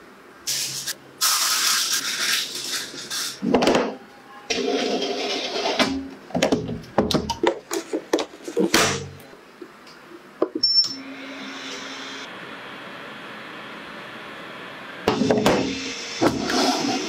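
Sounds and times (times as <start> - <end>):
steam oven humming: 11.0 - 17.0.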